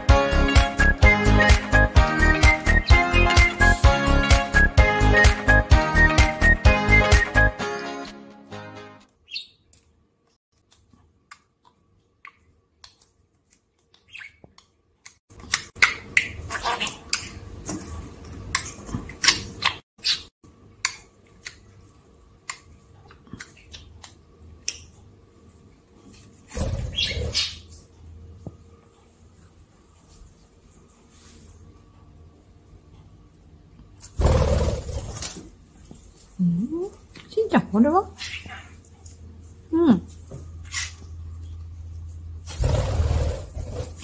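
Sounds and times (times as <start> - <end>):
budgerigar chirping: 9.3 - 9.6.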